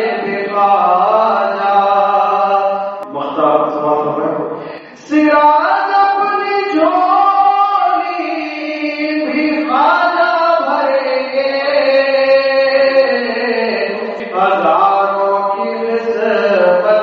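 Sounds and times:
person singing a chant: 0.0 - 17.0
singer breathing: 4.5 - 5.1.

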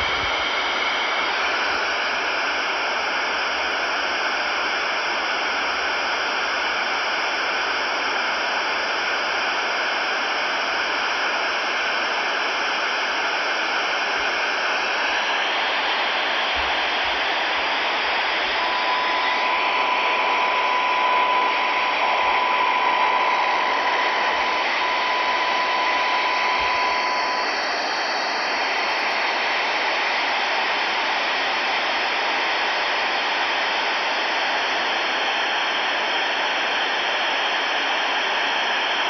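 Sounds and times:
radio static hiss: 12.8 - 35.1
steady high tone: 14.8 - 30.4.

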